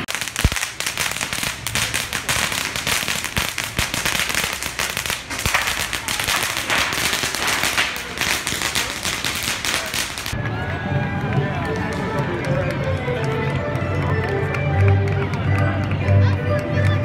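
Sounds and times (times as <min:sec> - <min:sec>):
firecrackers crackling: 0:00.0 - 0:11.2.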